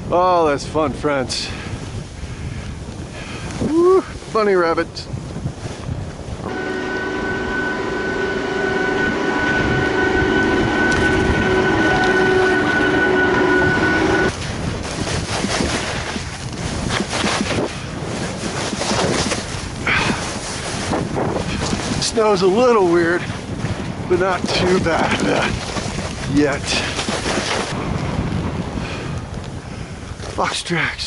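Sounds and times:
wind on microphone: 0.0 - 31.0
whine of held tones: 6.4 - 14.3
skis sliding over snow: 14.3 - 27.8.

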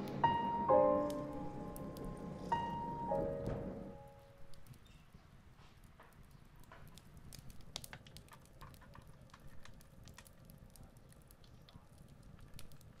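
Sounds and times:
low rumble: 0.0 - 4.1
small irregular clicks: 4.5 - 5.0, 5.8 - 13.0.

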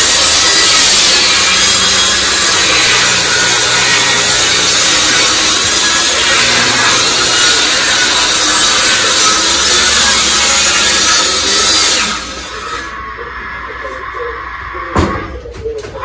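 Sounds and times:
table saw cutting wood: 0.0 - 14.2
table saw humming: 0.0 - 14.6.

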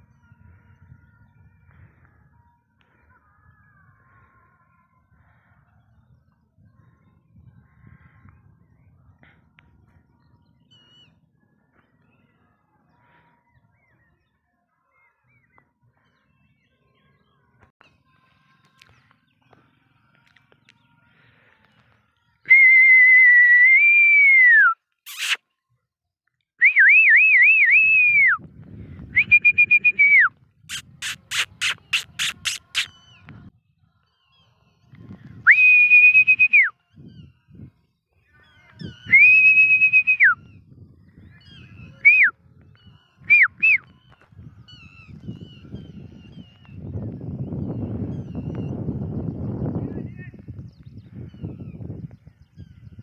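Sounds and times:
person whistling: 29.2 - 30.3, 35.5 - 36.7.

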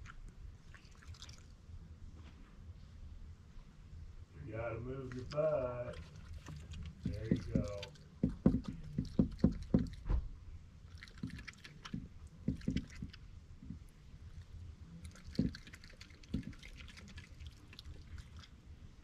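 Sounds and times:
animal wet chewing and lapping: 0.0 - 1.6, 5.0 - 10.1, 10.8 - 19.0.

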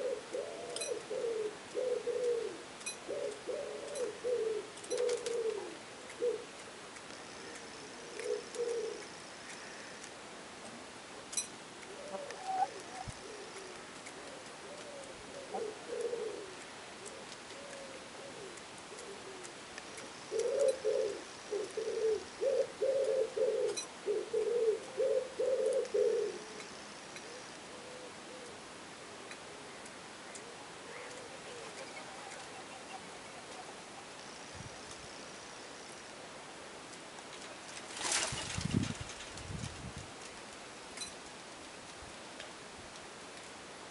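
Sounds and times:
short low bird calls: 11.9 - 13.8.

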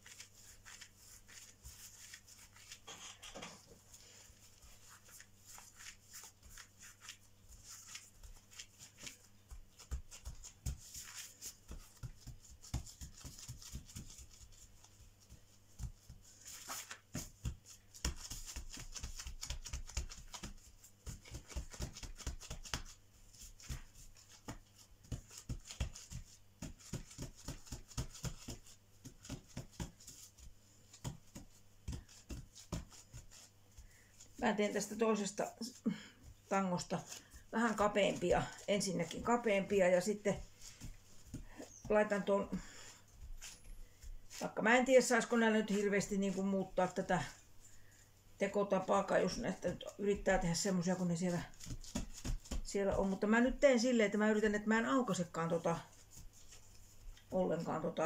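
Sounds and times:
plastic gloves crinkling: 0.0 - 28.6
dough taps and thumps: 8.0 - 34.9, 35.7 - 44.5, 51.4 - 53.6.

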